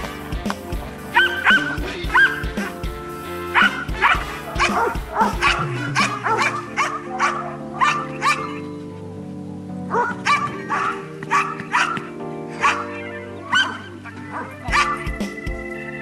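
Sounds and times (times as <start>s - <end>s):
background music sustained tones: 0.0s - 16.0s
dog barking sharply: 1.1s - 2.8s, 3.5s - 8.6s, 9.9s - 15.1s.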